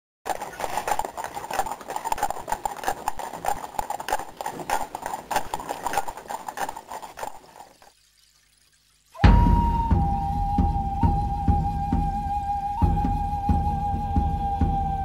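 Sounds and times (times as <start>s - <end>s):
horse hooves clip-clopping: 0.3s - 8.6s.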